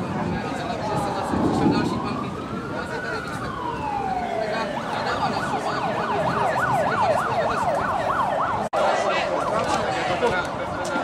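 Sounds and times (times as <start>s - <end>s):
emergency vehicle siren: 0.0s - 10.8s
crowd noise: 0.0s - 11.0s.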